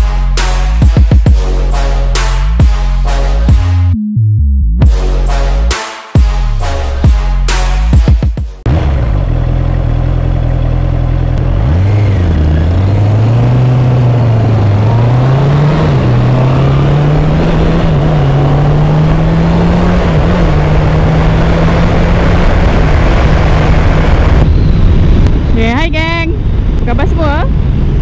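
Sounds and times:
motorcycle engine accelerating: 8.6s - 28.0s.

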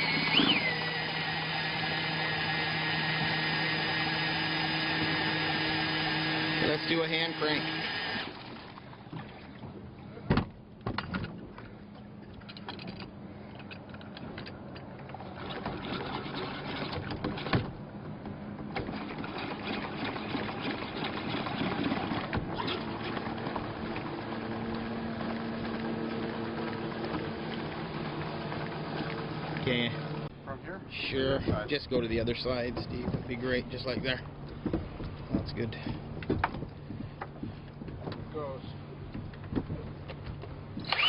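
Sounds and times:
hand pump whirring: 0.0s - 8.6s, 15.2s - 17.7s, 18.7s - 30.3s, 40.8s - 41.0s
water pouring and splashing: 18.8s - 30.0s.

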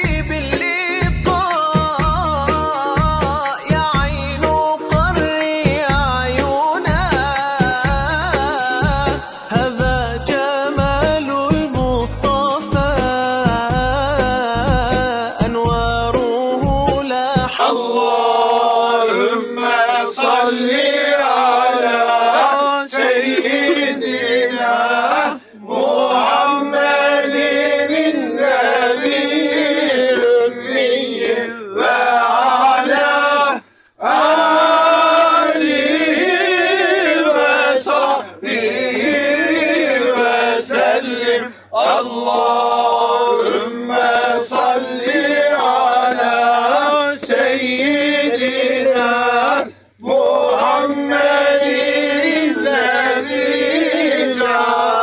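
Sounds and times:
men chanting together: 0.0s - 55.0s.

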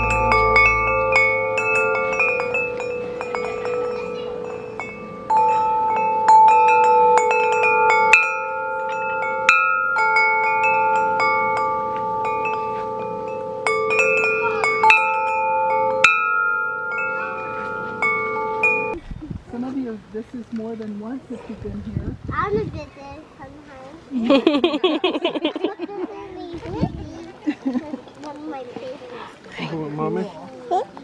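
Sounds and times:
tubular wind chime ringing: 0.0s - 19.0s.

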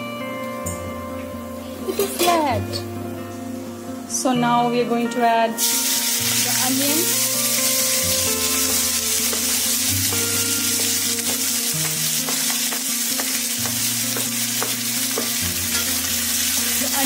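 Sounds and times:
onions sizzling in hot oil: 5.6s - 17.0s.

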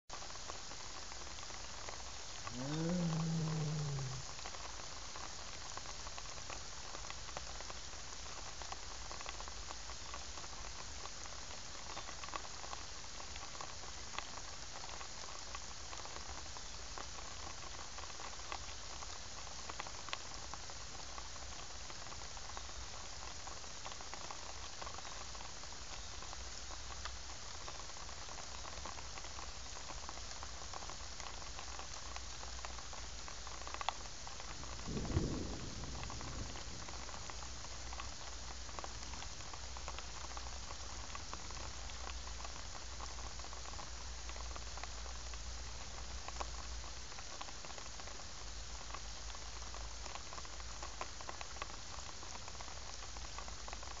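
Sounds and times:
heavy rain on pond water: 0.1s - 54.0s
low rumble: 34.6s - 38.0s.

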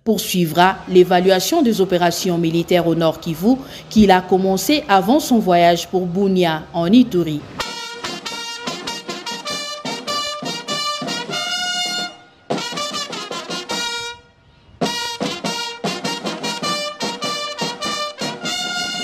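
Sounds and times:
brass band playing: 7.6s - 19.0s.

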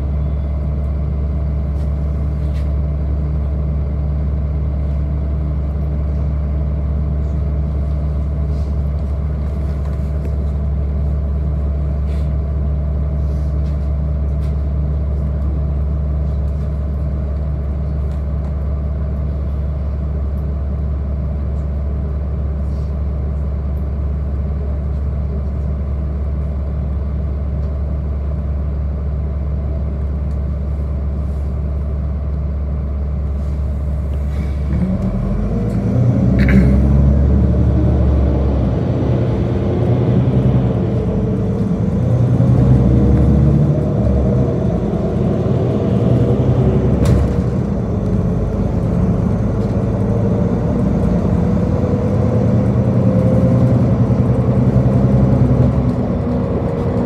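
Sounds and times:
bus engine idling and accelerating: 0.0s - 57.0s.

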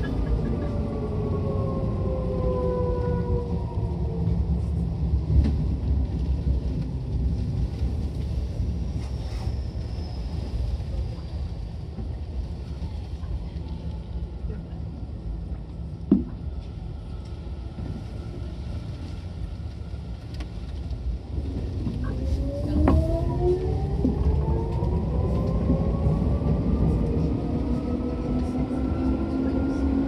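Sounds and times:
train rumbling: 0.0s - 30.0s.

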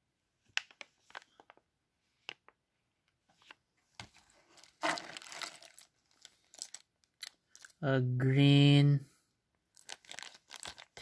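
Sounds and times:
plastic rustling in cardboard box: 4.1s - 6.8s, 9.8s - 11.0s
plastic bags crinkling: 4.1s - 7.8s, 9.7s - 11.0s.

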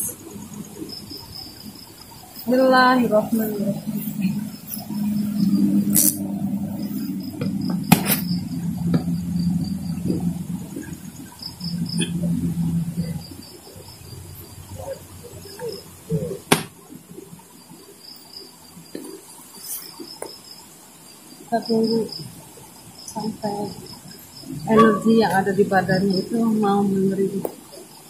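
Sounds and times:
crickets chirping: 0.0s - 28.0s
low voice murmuring: 11.7s - 13.2s, 14.7s - 16.5s, 24.6s - 26.1s.

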